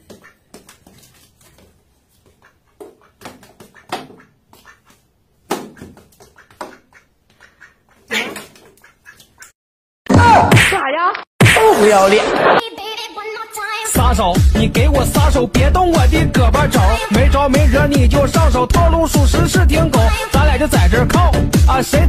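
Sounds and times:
duck quacking: 0:02.4 - 0:05.0, 0:05.7 - 0:09.5, 0:16.9 - 0:18.0.

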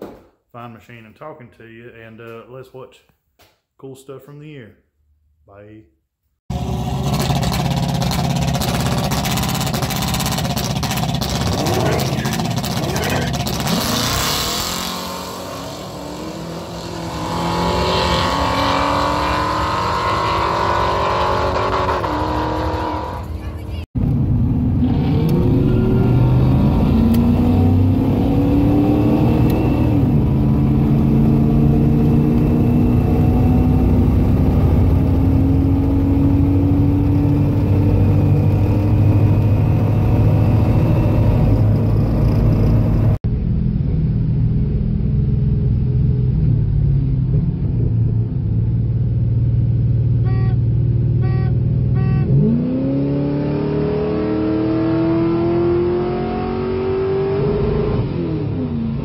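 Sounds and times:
car engine accelerating: 0:06.5 - 0:59.0
short electronic beeps: 0:50.3 - 0:50.6, 0:51.2 - 0:52.4.

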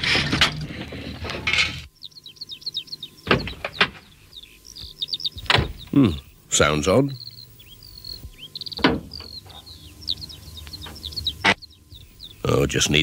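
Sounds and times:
birds chirping: 0:00.0 - 0:13.0
door slamming shut: 0:03.3 - 0:04.0, 0:05.4 - 0:05.9, 0:08.8 - 0:09.1.

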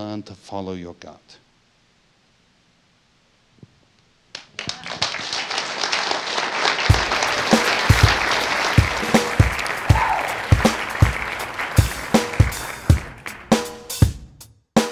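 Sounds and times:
audience applause: 0:04.5 - 0:14.0
music with drum beat: 0:06.9 - 0:14.9.

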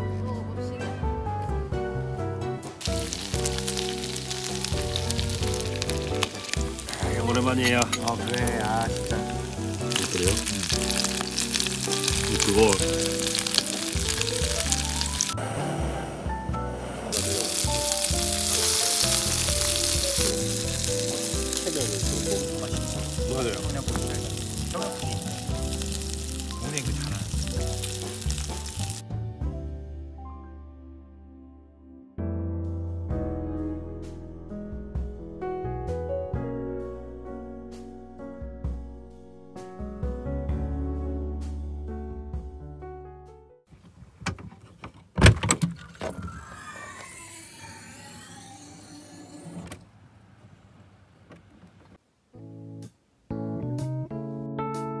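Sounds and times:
soft background music: 0:00.0 - 0:43.5
campfire crackling and popping: 0:02.8 - 0:15.4, 0:17.1 - 0:29.0
small electric motor whining: 0:46.1 - 0:49.7.

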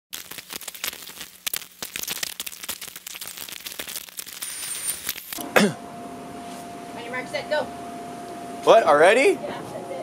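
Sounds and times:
plastic sheeting rustling: 0:00.1 - 0:05.2.

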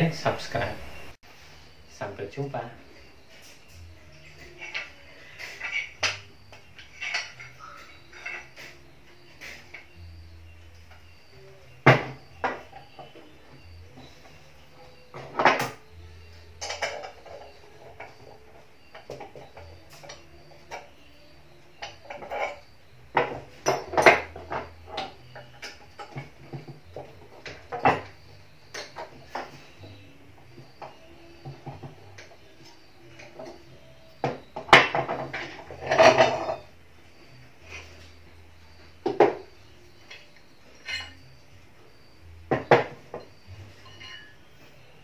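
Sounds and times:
metal clinks and knocks: 0:03.2 - 0:10.1, 0:14.8 - 0:36.7, 0:39.0 - 0:41.5, 0:42.5 - 0:44.5.

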